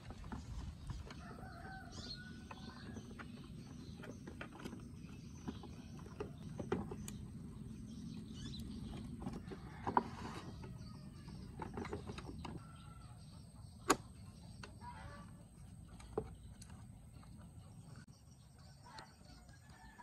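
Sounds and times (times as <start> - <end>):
low background rumble: 0.0 - 13.8.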